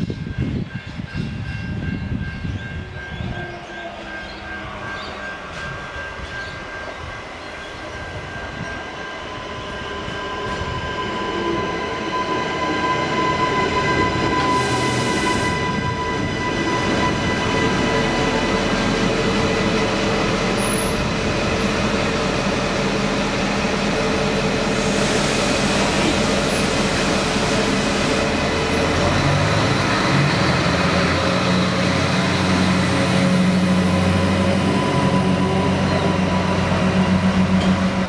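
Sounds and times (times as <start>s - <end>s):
wheels rumbling on rail: 0.0s - 38.0s.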